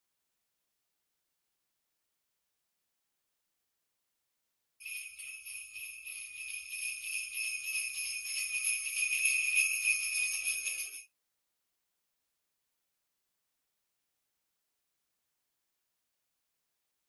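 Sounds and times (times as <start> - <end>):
jingle bells shaken: 4.8 - 11.1.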